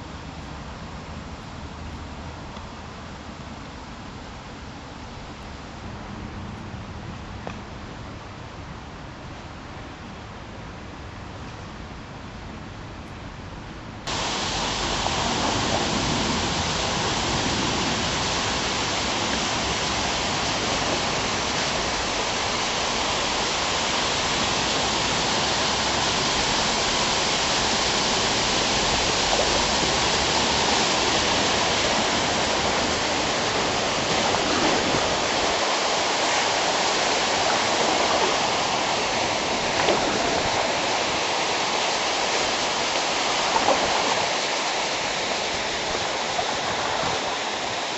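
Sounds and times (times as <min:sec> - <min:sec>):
flowing water rushing: 0:14.1 - 0:47.9.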